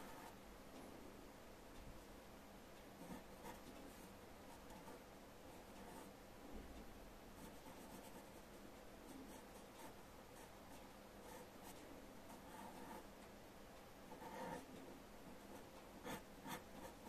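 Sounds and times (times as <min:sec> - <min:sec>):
pencil sketching on paper: 0:11.3 - 0:13.0, 0:14.1 - 0:14.7, 0:15.5 - 0:17.0.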